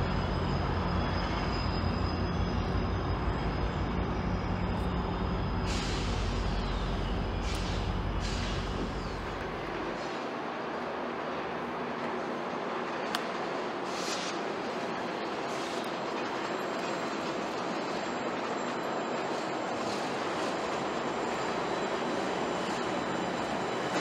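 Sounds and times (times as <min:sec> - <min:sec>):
diesel locomotive engine rumble: 0:00.0 - 0:24.0
air brakes hissing: 0:05.5 - 0:09.2, 0:13.8 - 0:14.6, 0:15.4 - 0:16.1.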